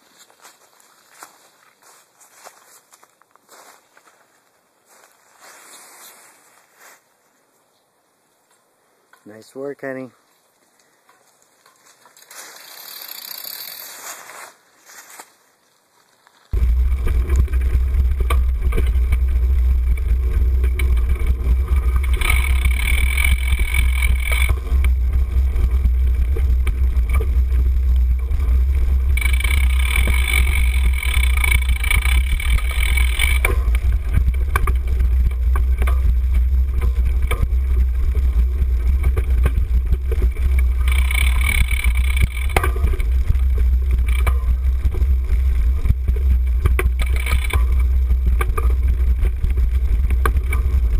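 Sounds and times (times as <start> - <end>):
bike rattling over bumps: 11.8 - 14.3, 16.6 - 50.9
high-pitched buzzing: 16.6 - 50.9.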